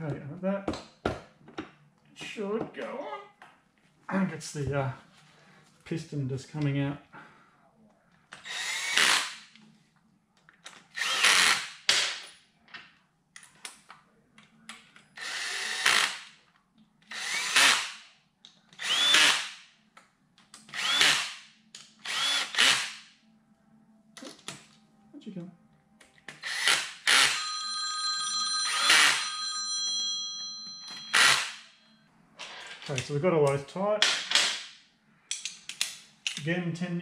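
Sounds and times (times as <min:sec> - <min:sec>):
cordless drill driving screws: 0:08.4 - 0:09.4, 0:10.9 - 0:11.7, 0:15.2 - 0:16.2, 0:17.1 - 0:17.9, 0:18.8 - 0:19.5, 0:20.7 - 0:21.4, 0:22.0 - 0:23.0, 0:26.4 - 0:27.4.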